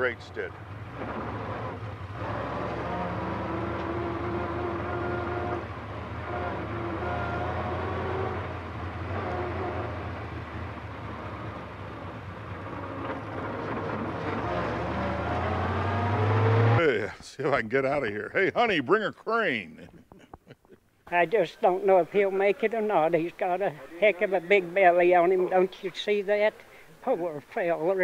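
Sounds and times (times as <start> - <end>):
racing car engine running: 0.0 - 17.1.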